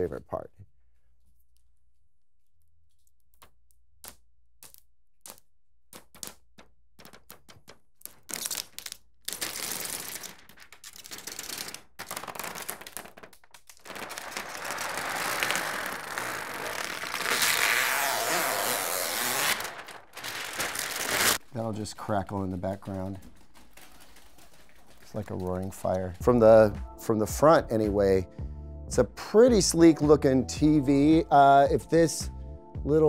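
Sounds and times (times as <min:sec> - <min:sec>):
plastic film crinkling and crackling: 0:06.1 - 0:26.2.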